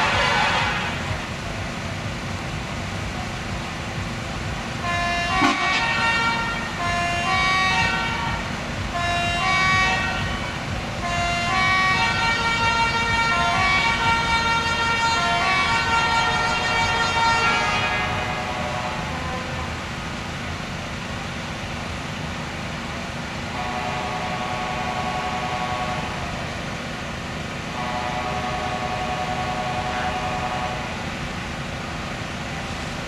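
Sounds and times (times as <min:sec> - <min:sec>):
horn-like tune: 0:00.0 - 0:01.3, 0:04.8 - 0:19.7, 0:23.5 - 0:26.4, 0:27.7 - 0:31.0
steady low rumble: 0:00.0 - 0:33.0.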